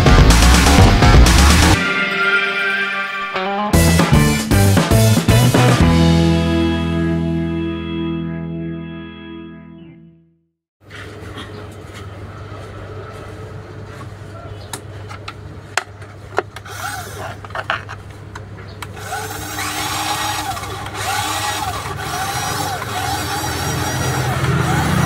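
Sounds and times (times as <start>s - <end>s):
small electric motor whining: 16.7s - 17.4s, 19.0s - 25.0s.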